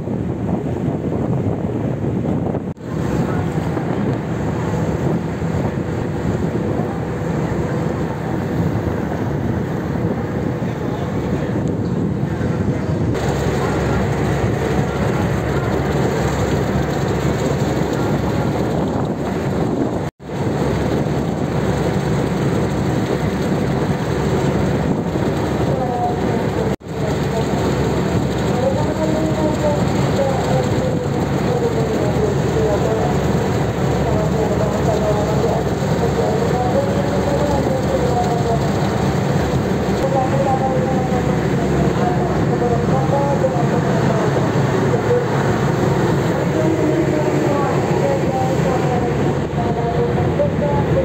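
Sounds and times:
propeller wake churning: 0.0 - 51.0
ship engines droning: 0.0 - 51.0
wind: 0.0 - 51.0
water rushing: 12.4 - 51.0.

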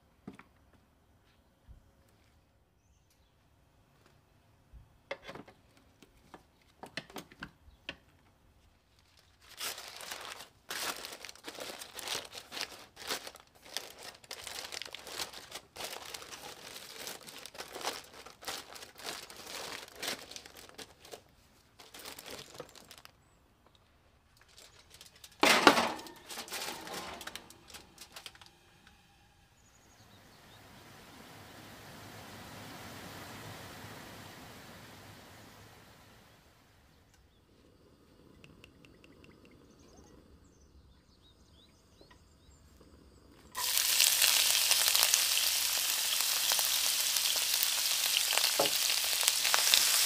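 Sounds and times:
aluminium foil crinkling: 8.6 - 23.2, 24.3 - 28.7, 43.6 - 50.0.

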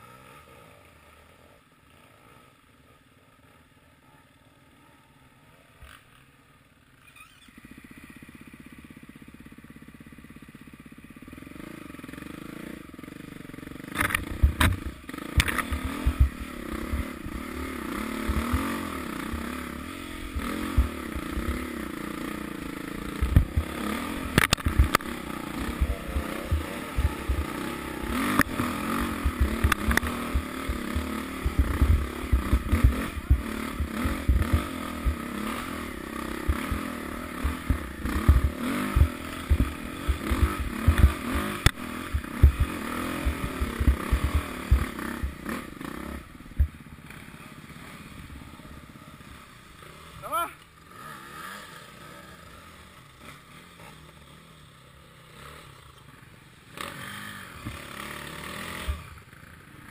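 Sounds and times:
off-road motorbike engine: 0.0 - 59.9
bike knocking and clattering over bumps: 13.9 - 17.4, 23.1 - 45.7, 46.6 - 46.8.

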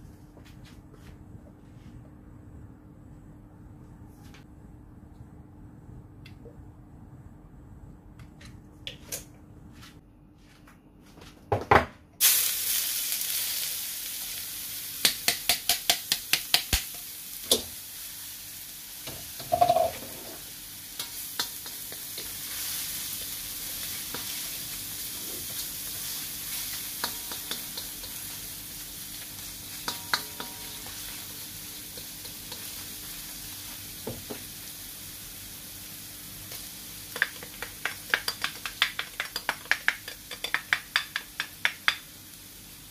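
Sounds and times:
sizzle of frying: 12.2 - 42.9
onion dropped into hot oil: 19.1 - 20.0.

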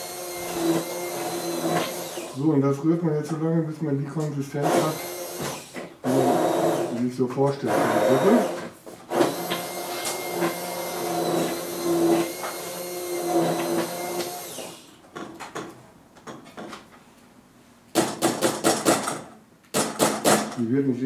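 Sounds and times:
electric stick blender humming: 0.0 - 2.4, 4.6 - 7.0, 7.7 - 14.8.

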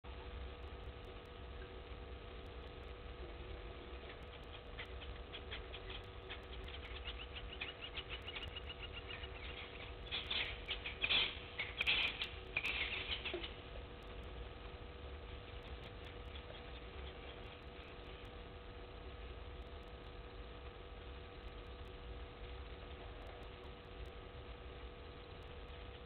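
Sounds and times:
dry grass crackling and rustling: 2.4 - 18.4.

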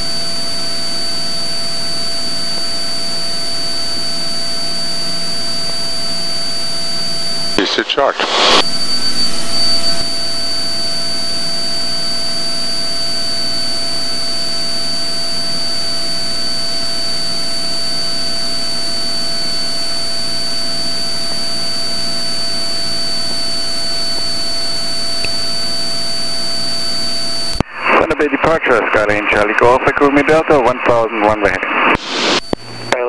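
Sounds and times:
airplane engine drone in cabin: 0.0 - 29.5.

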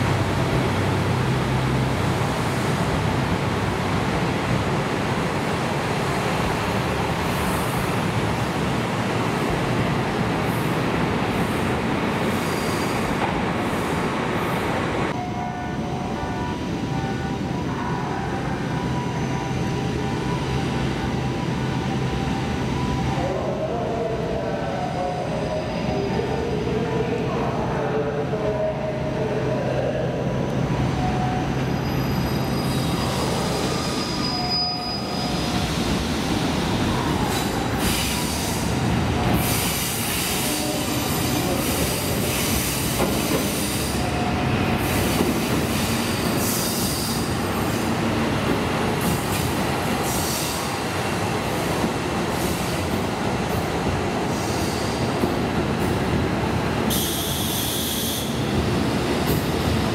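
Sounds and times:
wheels squealing on rails: 12.3 - 13.2, 31.0 - 48.0, 56.9 - 58.5
diesel train rolling: 27.1 - 59.9.

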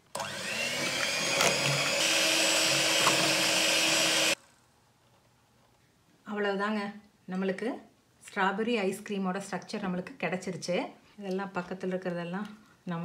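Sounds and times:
electric hand mixer whipping: 0.0 - 4.4.

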